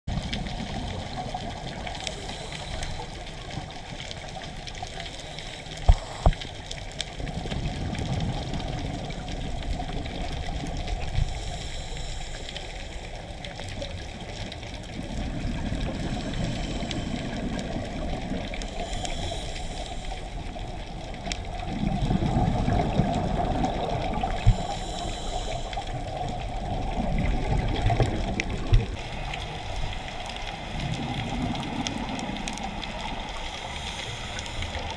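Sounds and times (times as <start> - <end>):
regulator bubbles gurgling: 0.1 - 34.9
regulator hiss: 1.9 - 3.4, 4.8 - 6.6, 11.0 - 13.3, 16.0 - 20.8, 24.1 - 26.9, 32.9 - 34.9.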